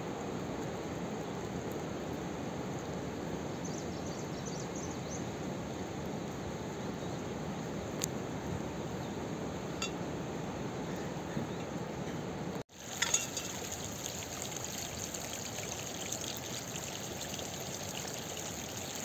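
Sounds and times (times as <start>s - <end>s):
stream water rushing: 12.7s - 19.0s.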